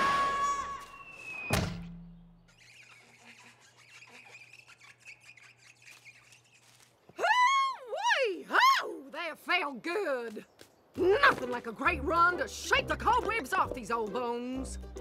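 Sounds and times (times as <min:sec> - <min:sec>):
cartoon thud: 0:01.5 - 0:02.3.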